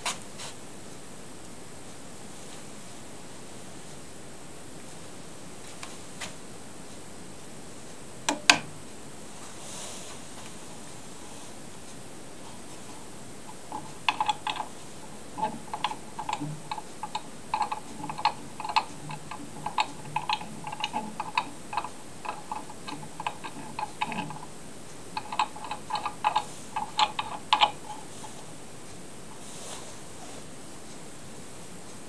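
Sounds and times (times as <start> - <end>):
small metallic clicks: 13.5 - 28.6.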